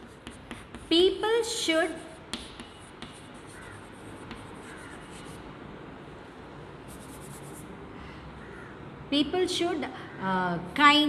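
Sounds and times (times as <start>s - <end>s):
chalk scratching on chalkboard: 0.0s - 5.4s, 6.9s - 7.7s
chalk tapping: 0.0s - 5.4s.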